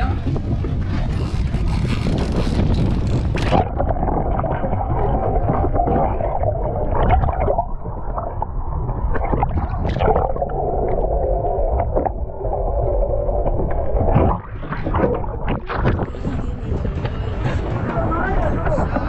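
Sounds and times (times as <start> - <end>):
low underwater rumble: 0.0 - 19.0
water gurgling: 0.0 - 19.0
knocks and splashes: 2.1 - 10.5, 13.5 - 17.2.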